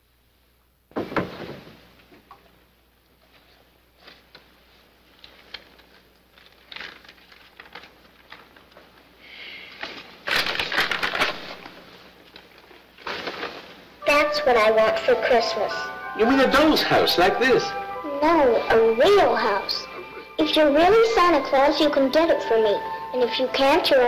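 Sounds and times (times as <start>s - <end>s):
paper rustling and crinkling: 3.2s - 9.1s, 9.8s - 13.8s.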